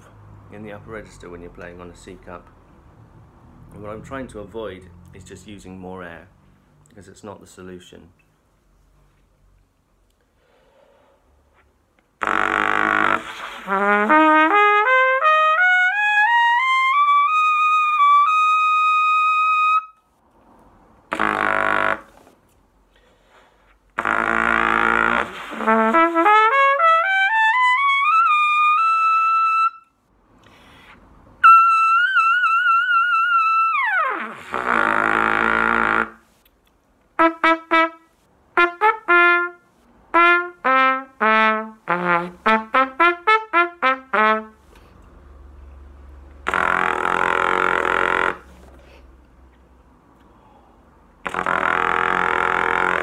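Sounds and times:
breath noise: 0:10.2 - 0:11.7, 0:22.8 - 0:24.0, 0:30.4 - 0:31.2, 0:50.2 - 0:51.0
trumpet playing: 0:12.2 - 0:20.0, 0:21.1 - 0:22.2, 0:24.0 - 0:29.9, 0:31.4 - 0:36.3, 0:37.2 - 0:44.6, 0:46.4 - 0:48.6, 0:51.2 - 0:53.0.

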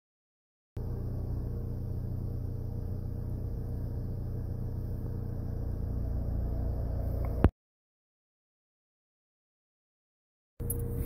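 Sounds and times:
car engine idling: 0:00.8 - 0:07.5, 0:10.6 - 0:11.0
distant siren tone: 0:05.8 - 0:07.5.

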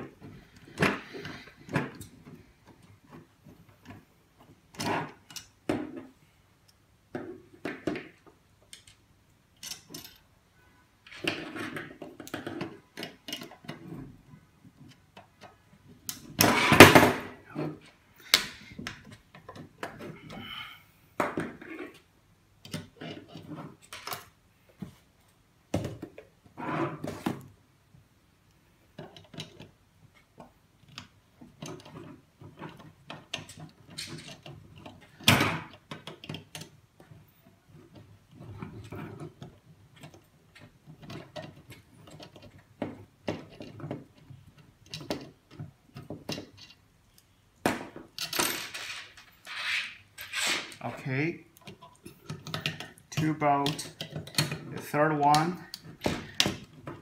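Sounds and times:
tools clicking on metal parts: 0:09.6 - 0:10.3, 0:51.6 - 0:56.8.

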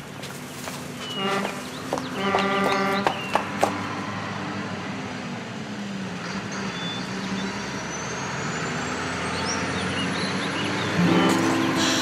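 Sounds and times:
heavy vehicle engine running: 0:00.0 - 0:12.0.

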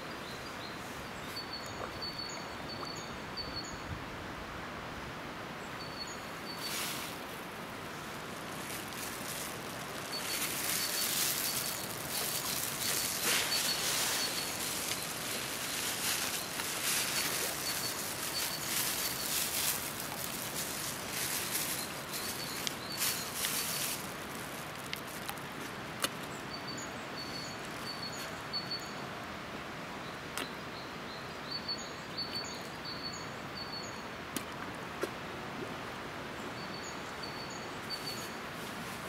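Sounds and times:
rustling hiss: 0:03.7 - 0:29.8, 0:35.7 - 0:39.0.

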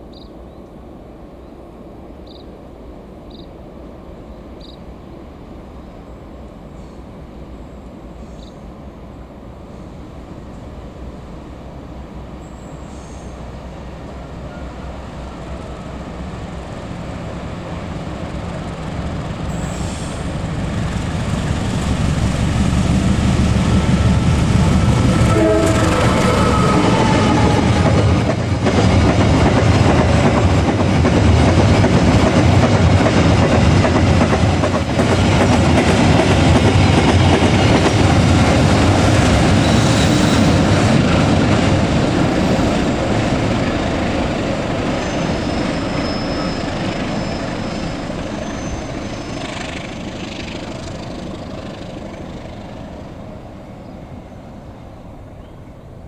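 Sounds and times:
locomotive engine: 0:13.6 - 0:53.8.

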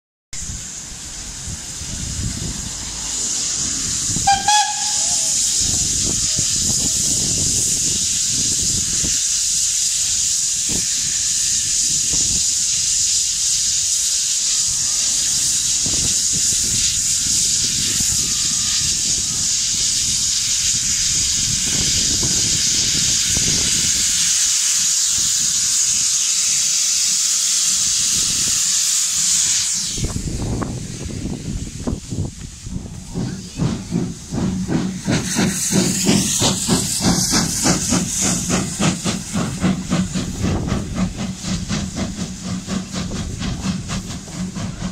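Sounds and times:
steam hissing: 0:00.4 - 0:44.9
steam whistle toot: 0:04.1 - 0:05.9.

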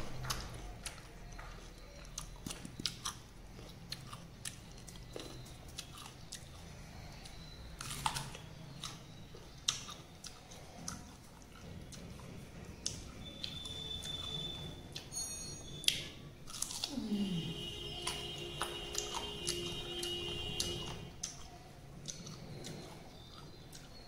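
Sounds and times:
person chewing crunchy mango: 0:00.0 - 0:24.0.

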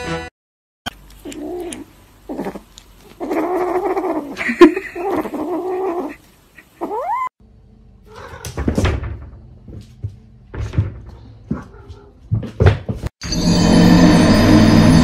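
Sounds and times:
kitten mewing: 0:01.2 - 0:07.3.

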